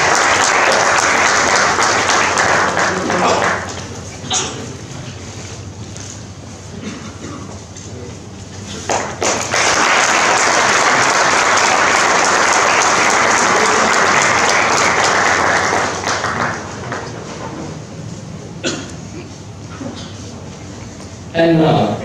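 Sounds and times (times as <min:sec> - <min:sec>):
audience applauding: 0:00.0 - 0:04.0, 0:08.8 - 0:17.6.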